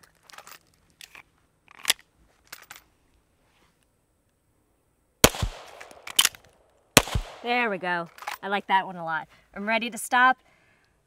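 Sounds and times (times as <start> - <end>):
pistol magazine clicking into place: 5.4 - 6.6.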